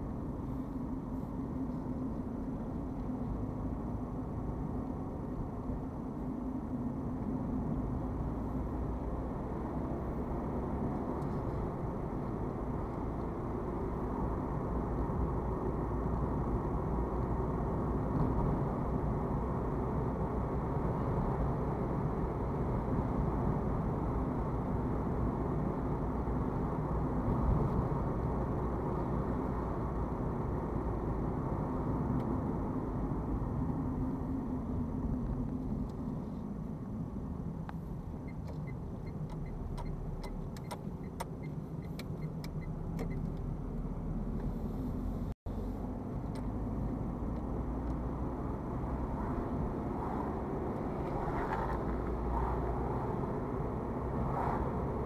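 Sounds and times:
car cabin rumble: 0:26.3 - 0:48.8.

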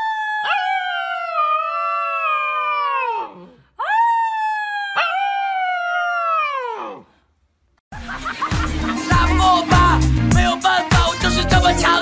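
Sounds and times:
puppy howling: 0:00.0 - 0:07.0.

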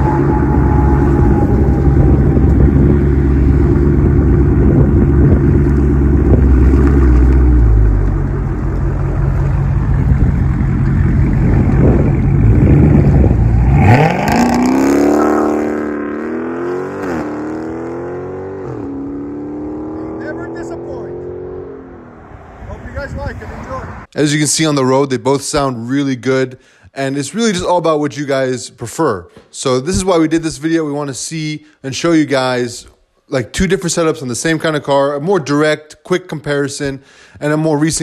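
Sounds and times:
car engine rumbling and accelerating: 0:00.0 - 0:24.1.

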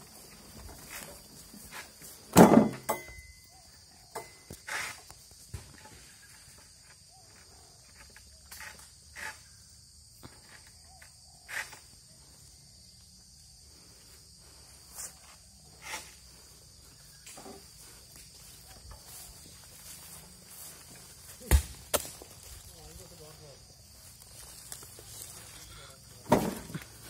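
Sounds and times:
insects droning: 0:00.0 - 0:27.0.

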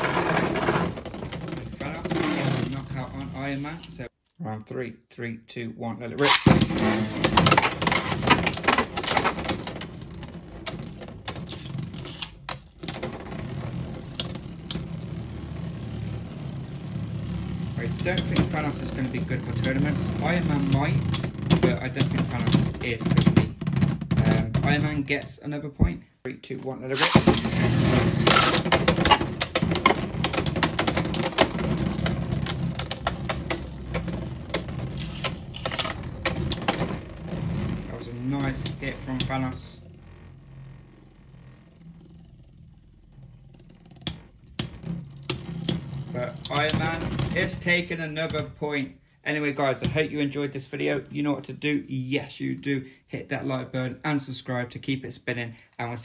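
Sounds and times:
plastic clicks and clacks: 0:06.2 - 0:13.4, 0:27.0 - 0:37.0, 0:43.6 - 0:48.5
spinning top whir: 0:06.2 - 0:23.2, 0:26.9 - 0:48.4.

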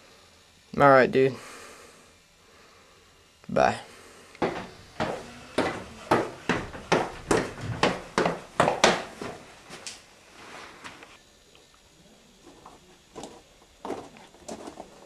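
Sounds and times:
hard footsteps: 0:04.4 - 0:10.0.

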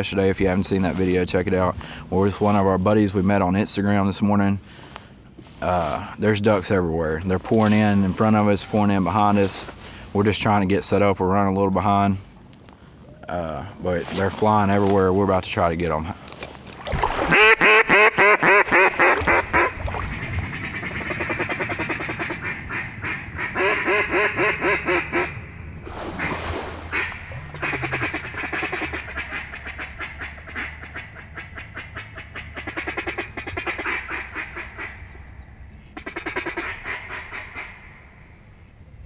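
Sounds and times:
duck quacking: 0:17.3 - 0:25.4, 0:26.2 - 0:35.0, 0:36.0 - 0:37.8.

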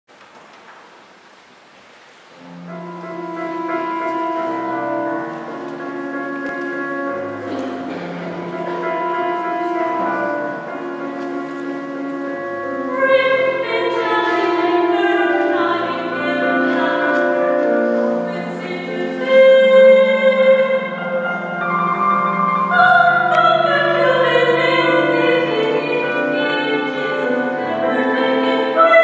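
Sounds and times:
keyboard accompaniment: 0:02.4 - 0:29.0
mixed choir singing: 0:22.8 - 0:29.0.

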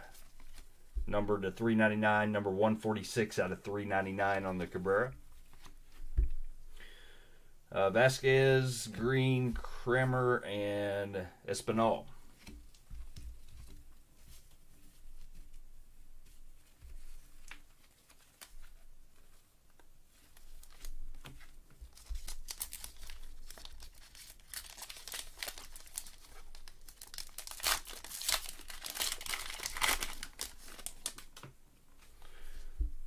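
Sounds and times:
foil wrapper crinkling: 0:21.9 - 0:31.4.

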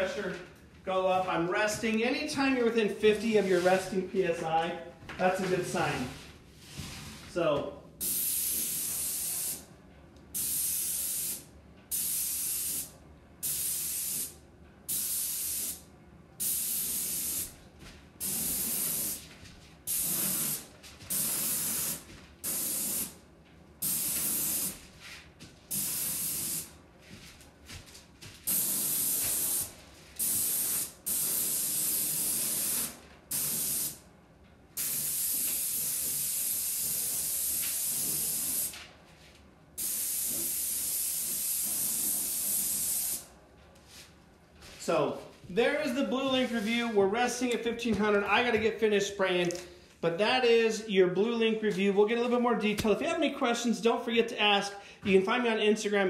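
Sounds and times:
paint spray gun hissing: 0:08.0 - 0:09.6, 0:10.4 - 0:14.3, 0:14.9 - 0:15.8, 0:16.4 - 0:17.5, 0:18.2 - 0:19.2, 0:19.9 - 0:23.1, 0:23.8 - 0:24.8, 0:25.7 - 0:26.7, 0:28.5 - 0:34.0, 0:34.8 - 0:38.7, 0:39.8 - 0:43.3.

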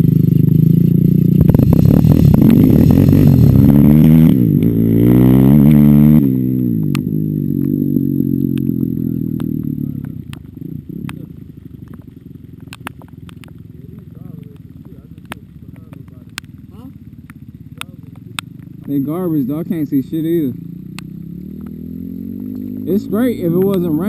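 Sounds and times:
off-road vehicle engine revving: 0:00.0 - 0:24.0.

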